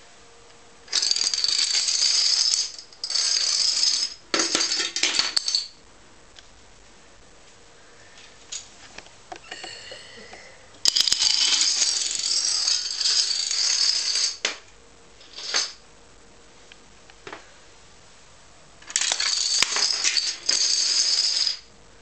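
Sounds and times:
plastic dominoes clattering: 0:00.9 - 0:05.7, 0:10.8 - 0:14.6, 0:15.2 - 0:15.8, 0:18.8 - 0:21.6.

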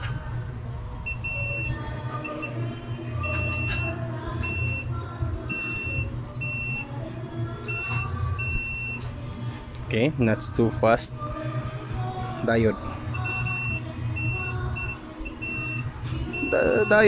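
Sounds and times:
faint background music: 0:00.0 - 0:17.0
short high multimeter beeps: 0:01.1 - 0:02.6, 0:03.2 - 0:04.9, 0:05.5 - 0:06.9, 0:13.1 - 0:17.0.

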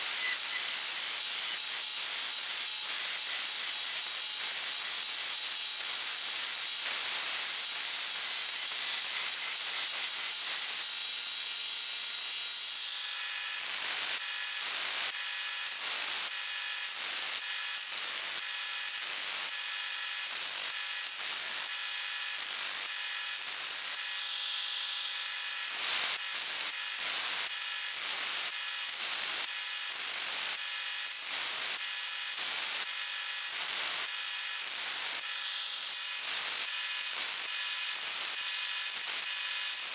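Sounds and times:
belt grinder grinding steel: 0:00.0 - 0:05.2.

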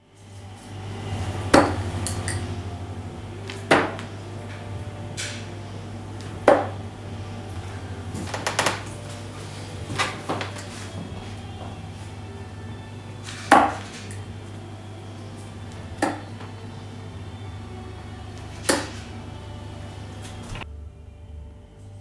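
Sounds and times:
steady low hum: 0:00.0 - 0:22.0
darts thudding into dartboard: 0:01.5 - 0:02.5, 0:03.5 - 0:04.2, 0:06.2 - 0:06.8, 0:13.2 - 0:14.2, 0:16.0 - 0:16.6, 0:18.5 - 0:19.2.

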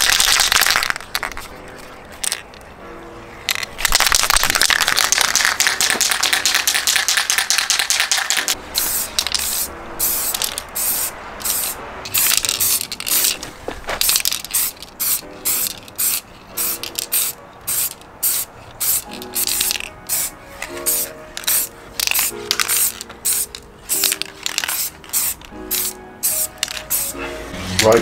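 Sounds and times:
aerosol spray can hissing: 0:14.4 - 0:27.2.

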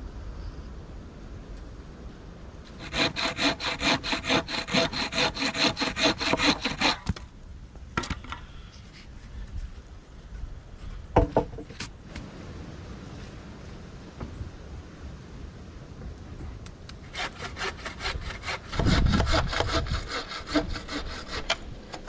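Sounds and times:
hand saw cutting wood: 0:02.7 - 0:07.1, 0:17.0 - 0:22.0.

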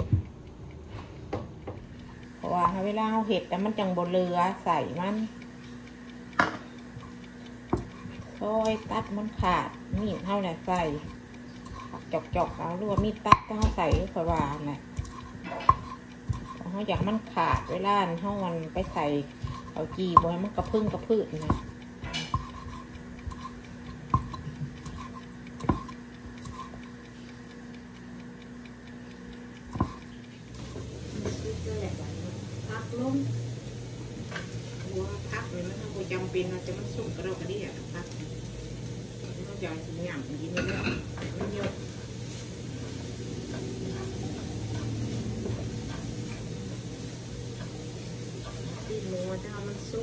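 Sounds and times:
frying hiss: 0:00.0 - 0:50.0
low steady hum: 0:00.0 - 0:50.0
spatula scraping frying pan: 0:07.8 - 0:27.0, 0:40.6 - 0:48.9.

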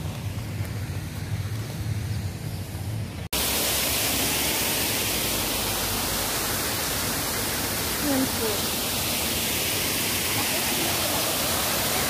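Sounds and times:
loud steady hiss: 0:00.0 - 0:12.0.

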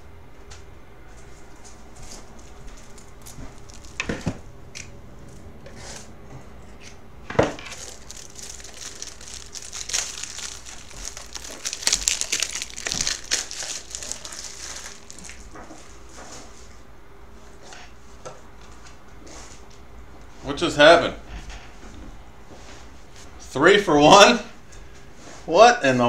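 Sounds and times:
plastic wrapper crinkling: 0:02.3 - 0:04.4, 0:07.6 - 0:15.9.

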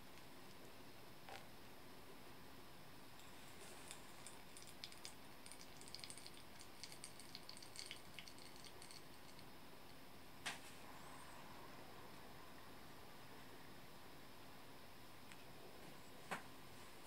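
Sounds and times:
coffee grounds crackling and popping: 0:03.2 - 0:09.5.

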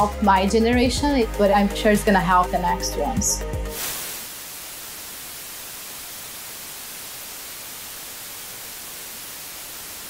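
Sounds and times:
tv static hiss: 0:03.6 - 0:10.0.

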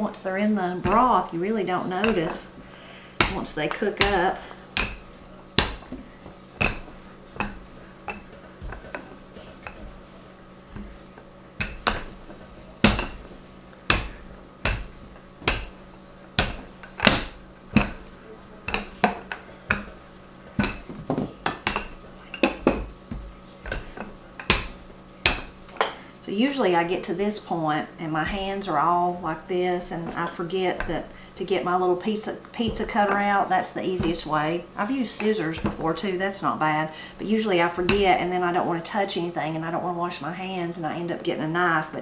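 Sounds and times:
rolling pin knocking on dough: 0:00.8 - 0:02.6, 0:03.2 - 0:10.1, 0:10.7 - 0:25.9, 0:28.2 - 0:31.8, 0:32.6 - 0:36.2, 0:37.6 - 0:38.3.

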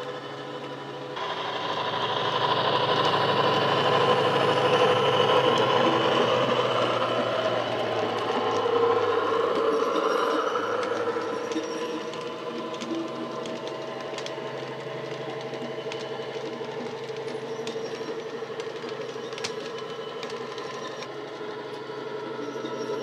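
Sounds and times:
model wagon wheels clicking on track: 0:01.8 - 0:21.5.

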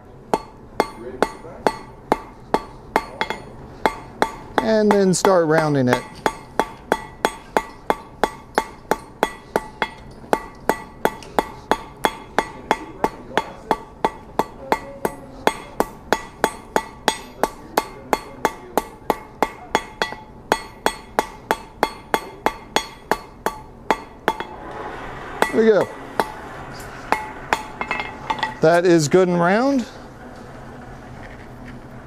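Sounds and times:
hammer striking steel on anvil: 0:00.3 - 0:24.6, 0:25.4 - 0:29.9.

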